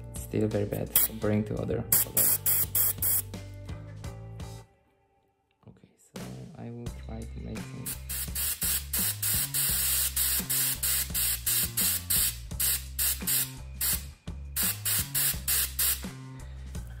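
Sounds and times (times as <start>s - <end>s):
airbrush spraying hiss: 1.9s - 3.3s, 7.8s - 16.0s.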